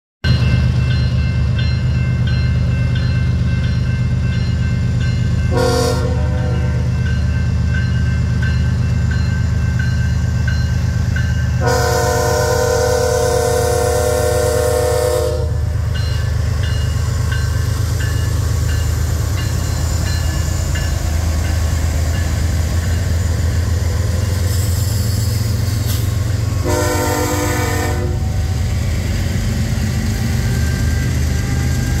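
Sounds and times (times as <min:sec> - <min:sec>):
crossing bell dinging: 0:00.2 - 0:24.2
freight train rumbling: 0:00.2 - 0:32.0
locomotive horn blasts: 0:05.5 - 0:06.9, 0:11.6 - 0:15.7, 0:26.5 - 0:28.4.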